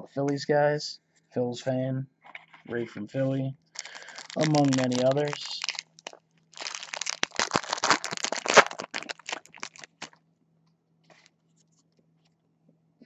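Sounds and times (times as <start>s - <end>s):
foil wrapper crinkling and tearing: 3.8s - 10.2s.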